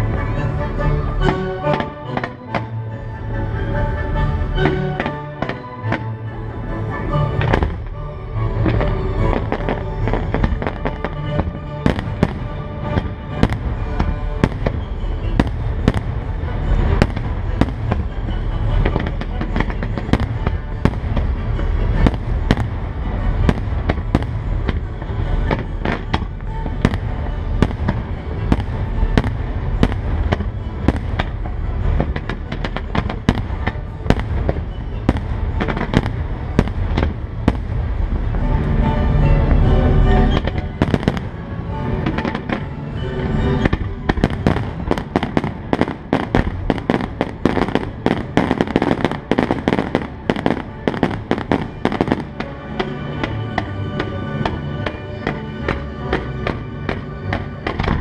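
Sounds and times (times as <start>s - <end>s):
fireworks bursting: 0.0s - 58.0s
music: 0.0s - 58.0s
fireworks crackle: 6.9s - 58.0s.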